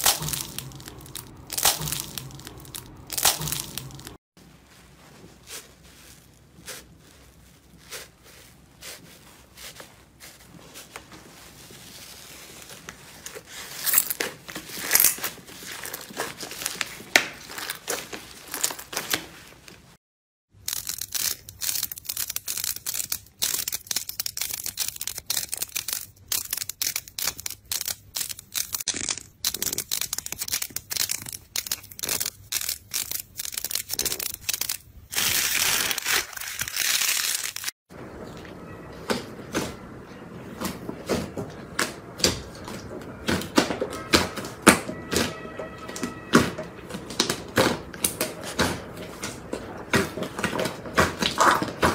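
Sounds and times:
foam slime crackling and popping: 0:00.0 - 0:04.2, 0:20.6 - 0:37.8, 0:47.1 - 0:51.9
slime crinkling: 0:00.0 - 0:19.9, 0:20.6 - 0:37.7.

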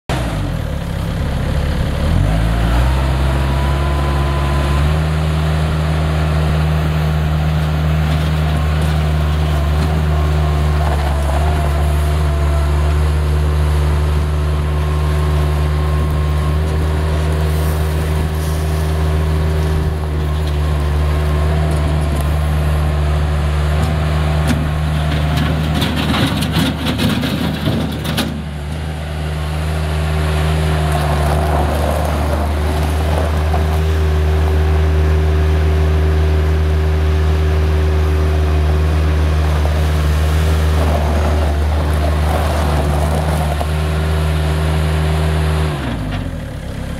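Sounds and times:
tires crunching on gravel: 0:00.1 - 0:36.0, 0:37.6 - 0:46.9
diesel engine revving: 0:00.1 - 0:46.9.

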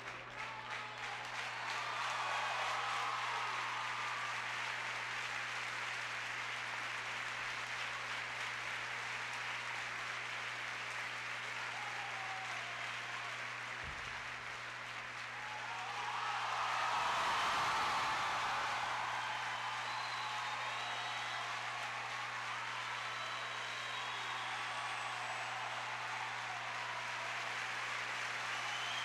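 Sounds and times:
audience applauding: 0:00.0 - 0:29.0.

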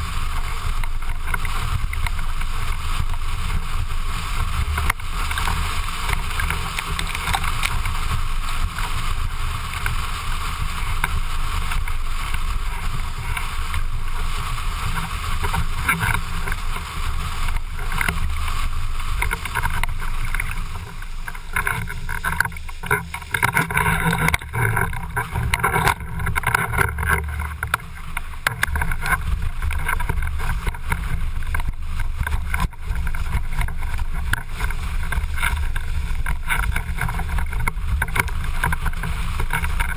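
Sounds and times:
wind rumbling on microphone: 0:00.0 - 0:39.9.

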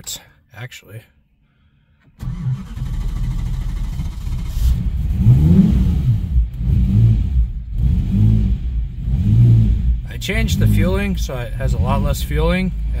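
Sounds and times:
engine starting: 0:02.0 - 0:04.9
engine idling unevenly: 0:09.9 - 0:13.0.

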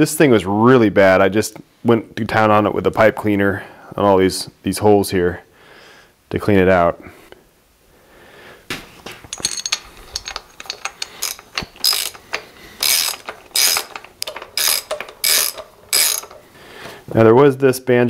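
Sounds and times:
parts clinking: 0:08.9 - 0:17.2
socket ratchet clicking: 0:09.6 - 0:16.5.

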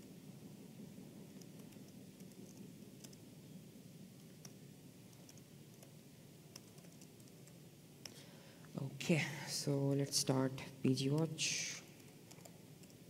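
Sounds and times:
low room hum: 0:00.0 - 0:13.0
faint laptop keystrokes: 0:01.3 - 0:03.2, 0:04.2 - 0:08.2.

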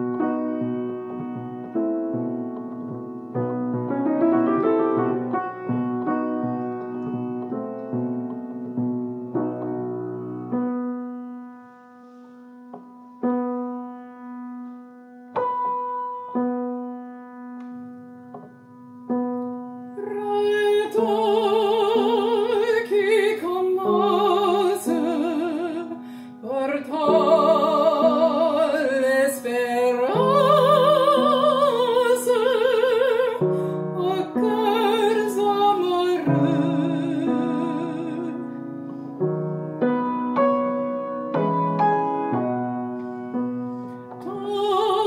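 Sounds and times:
piano chords: 0:00.0 - 0:45.0
female opera singer: 0:20.0 - 0:38.5, 0:44.2 - 0:45.0.

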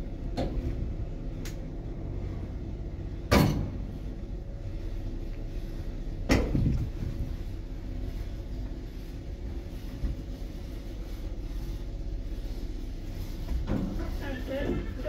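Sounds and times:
lift humming: 0:00.0 - 0:15.0
metal lift doors clunking: 0:03.3 - 0:03.9.

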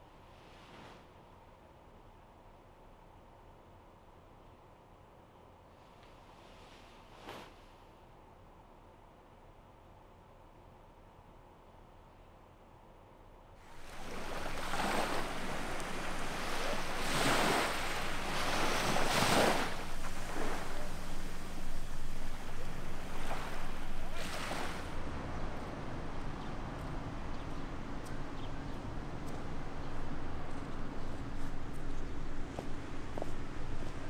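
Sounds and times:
faint low hum: 0:01.1 - 0:34.0
waves washing onto beach: 0:13.6 - 0:27.0.

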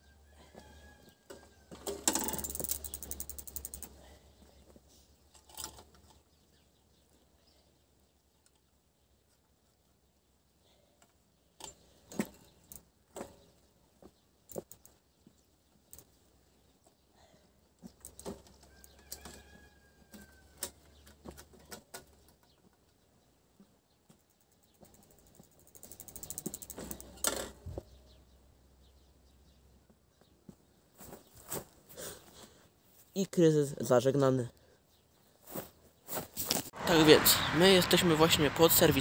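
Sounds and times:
bicycle clicks and rattles: 0:01.7 - 0:04.0, 0:05.3 - 0:06.2, 0:24.2 - 0:27.6.

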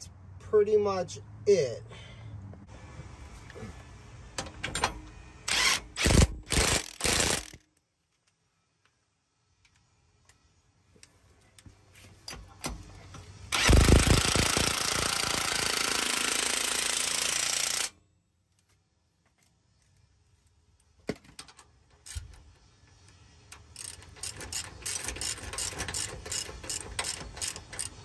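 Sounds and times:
loud mechanical noise: 0:02.7 - 0:07.6, 0:13.4 - 0:17.9
hand ratchet clicking: 0:22.0 - 0:22.5, 0:23.5 - 0:28.0.

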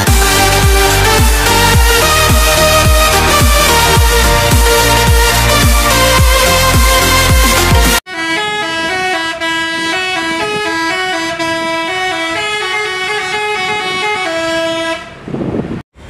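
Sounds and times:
electronic dance music: 0:00.0 - 0:08.1
musical bus horn playing a tune: 0:00.0 - 0:15.3.

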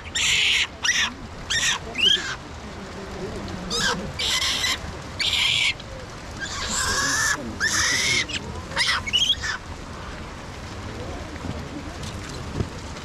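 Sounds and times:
monkeys screaming: 0:00.0 - 0:02.4, 0:03.7 - 0:05.8, 0:06.4 - 0:09.6.

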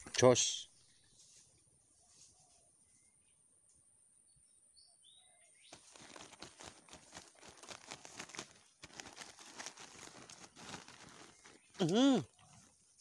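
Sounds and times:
faint high bird chirps: 0:00.7 - 0:06.2
dense crackling rustle: 0:05.7 - 0:13.0.

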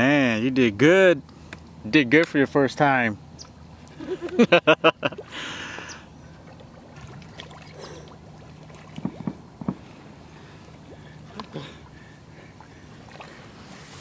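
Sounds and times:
sloshing steps in water: 0:06.4 - 0:09.8
sharp water splashes: 0:06.4 - 0:12.0.

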